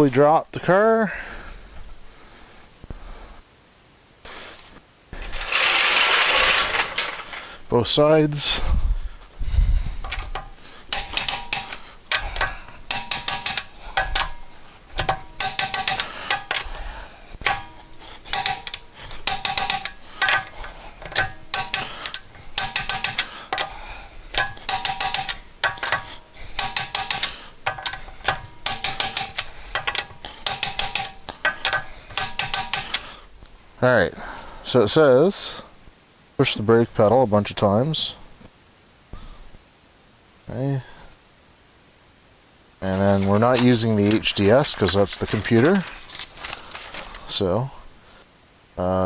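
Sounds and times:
ratchet wrench clicking: 0:05.3 - 0:07.3, 0:10.1 - 0:16.7, 0:17.4 - 0:33.1.

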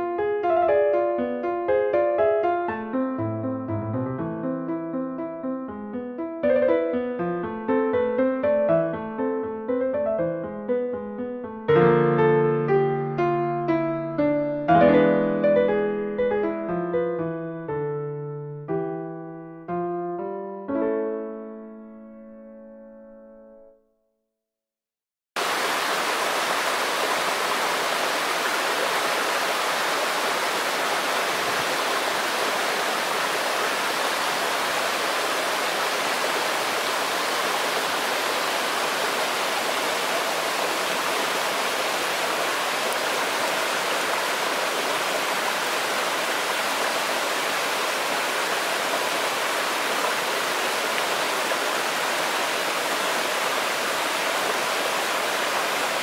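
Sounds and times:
stream pouring over rocks: 0:25.4 - 0:56.0.

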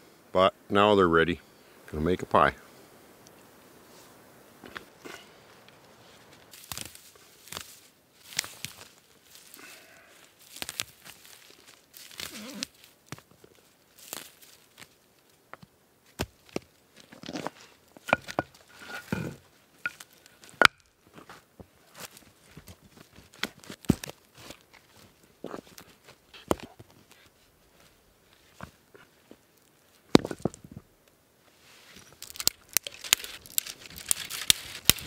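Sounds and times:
stones clacking and scraping: 0:15.5 - 0:21.4, 0:22.0 - 0:27.3, 0:30.0 - 0:30.9, 0:32.0 - 0:35.0
footsteps on rock rubble: 0:15.6 - 0:29.4.

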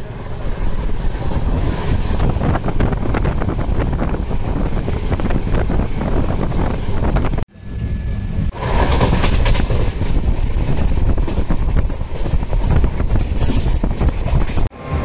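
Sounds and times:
train rumbling on rails: 0:00.0 - 0:15.0.

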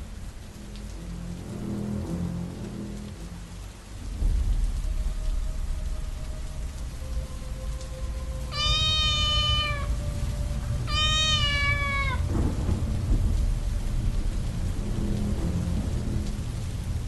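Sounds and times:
heavy rain: 0:00.0 - 0:17.0
low rumble of thunder: 0:00.0 - 0:17.0
cat meowing: 0:08.5 - 0:09.9, 0:10.9 - 0:12.2.

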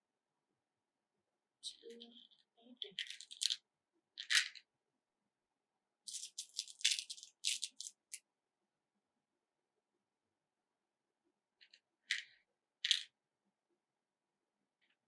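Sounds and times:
plastic beads clicking and rattling: 0:01.7 - 0:03.6, 0:04.2 - 0:04.6, 0:06.1 - 0:08.2.

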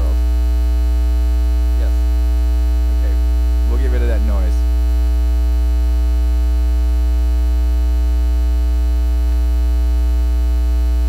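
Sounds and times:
electrical mains hum: 0:00.0 - 0:11.0.

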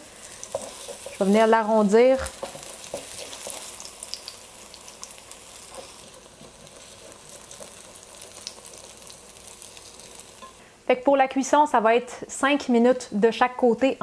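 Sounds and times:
batter sizzling in hot oil: 0:00.0 - 0:10.7.

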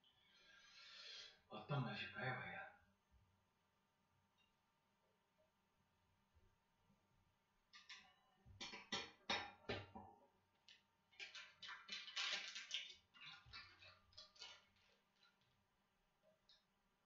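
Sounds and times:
plastic packet crinkling: 0:11.1 - 0:15.6.

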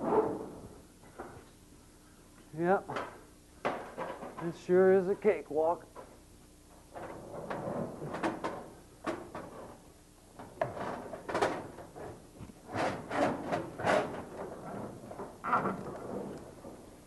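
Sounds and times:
metal tubing scraping and knocking: 0:10.6 - 0:16.4.

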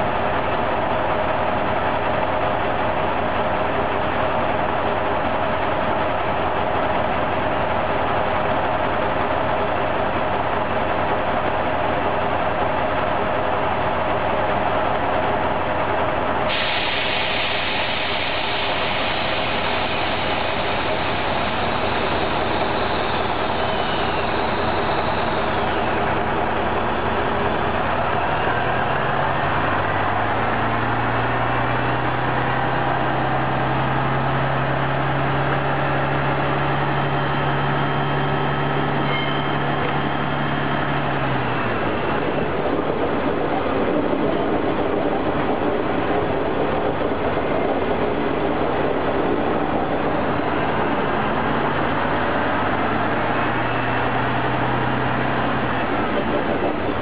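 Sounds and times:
low hum rising in steps: 0:00.0 - 0:57.0
railcar engine idling: 0:00.0 - 0:57.0
steady hiss: 0:16.5 - 0:26.1.

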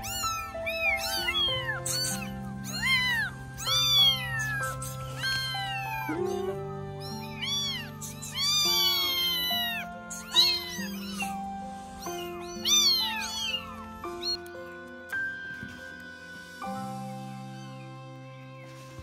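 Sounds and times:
kittens meowing: 0:00.0 - 0:14.8
background music: 0:00.0 - 0:19.0.

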